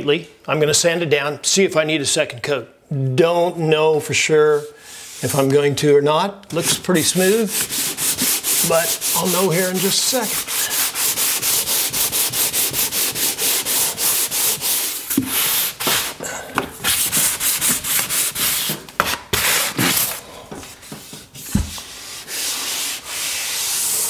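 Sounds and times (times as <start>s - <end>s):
sanding block rubbing drywall: 6.6s - 16.2s, 16.8s - 20.2s, 20.8s - 24.0s.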